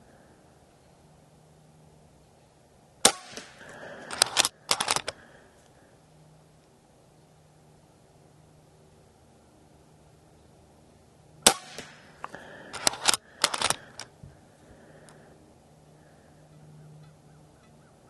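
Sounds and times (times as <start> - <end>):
air rifle shot: 3.0 - 5.2, 11.4 - 14.0
rifle action clicking: 4.0 - 5.2, 11.8 - 14.1.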